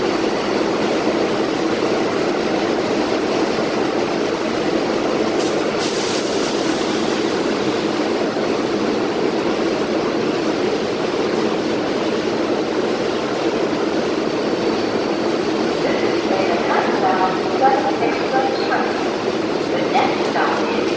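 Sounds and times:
subway train air conditioning hum: 0.0 - 20.9
short air hiss: 5.4 - 7.2.

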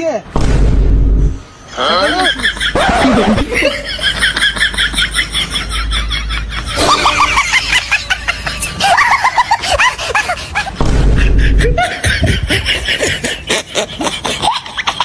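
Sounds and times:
low rumble: 0.4 - 1.4
young man laughing: 1.8 - 15.0.

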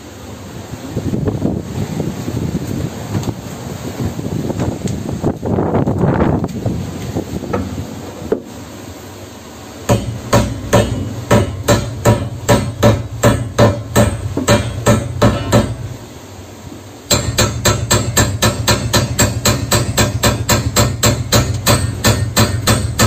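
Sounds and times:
hammer striking metal rod: 9.9 - 15.9, 17.1 - 23.0.

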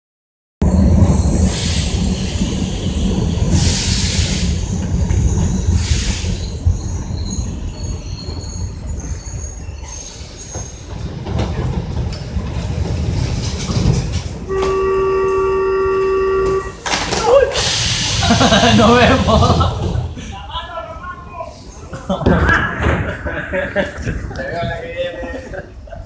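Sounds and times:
train wheels rumbling on track: 0.6 - 26.0
hiss: 1.5 - 4.9, 5.7 - 6.6, 17.5 - 19.7
wheel squeal: 5.1 - 11.0.

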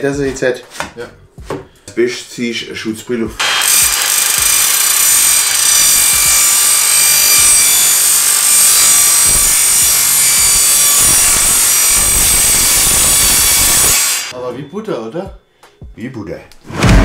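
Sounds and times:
table saw cutting metal plate: 3.4 - 14.3.

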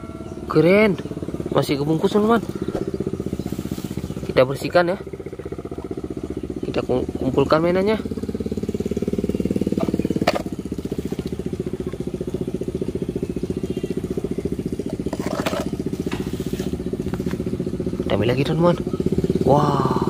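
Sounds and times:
small engine idling: 0.0 - 20.0.

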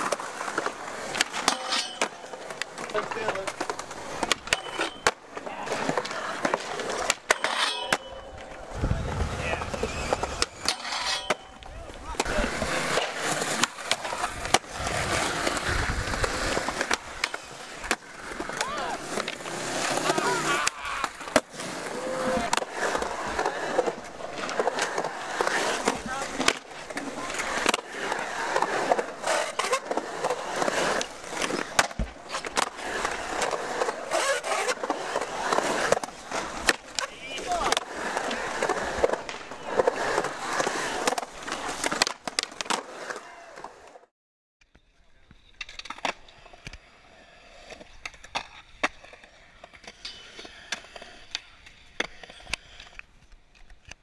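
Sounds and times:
skateboard clacks and knocks: 0.0 - 44.0
skateboard wheels rolling on concrete: 0.0 - 54.0
skateboard clacking on metal coping: 1.1 - 3.0, 4.2 - 5.2, 7.1 - 8.5.

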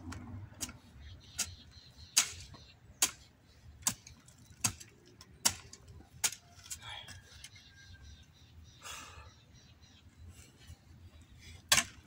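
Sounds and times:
hoe chopping into damp soil: 11.7 - 12.0.

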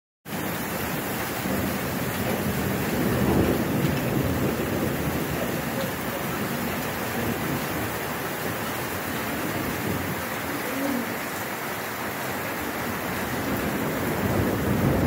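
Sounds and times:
heavy rain pouring: 0.2 - 15.0
rolling thunder: 1.3 - 10.6, 12.8 - 15.0.

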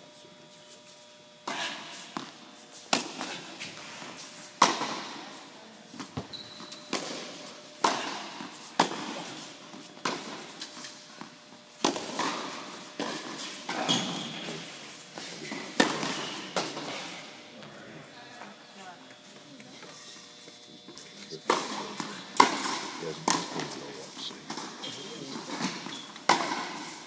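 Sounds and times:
tennis balls struck by rackets: 1.4 - 4.0, 4.6 - 5.4, 6.9 - 17.3, 21.4 - 27.0
tennis balls bouncing on hard court: 6.0 - 14.6, 15.2 - 17.1, 21.5 - 23.7, 25.5 - 26.9.

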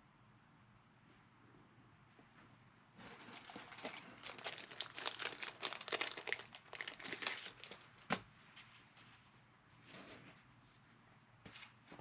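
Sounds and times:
cards crinkling and rustling: 3.0 - 8.2.

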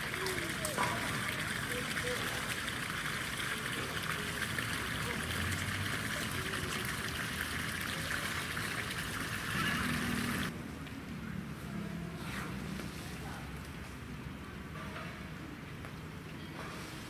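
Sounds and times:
trickle of running water: 0.0 - 10.5.

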